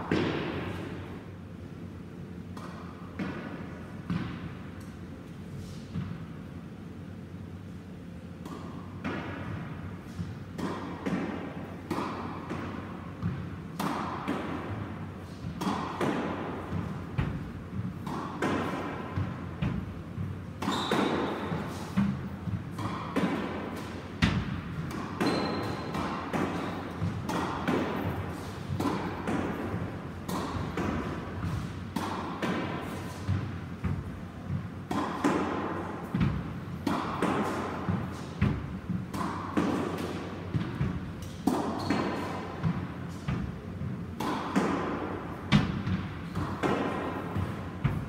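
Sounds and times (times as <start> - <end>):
squash ball thudding: 10.6 - 48.0.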